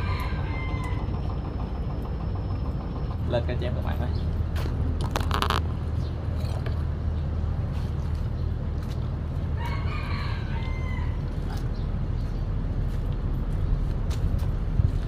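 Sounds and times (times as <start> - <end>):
steady low rumble: 10.4 - 15.0.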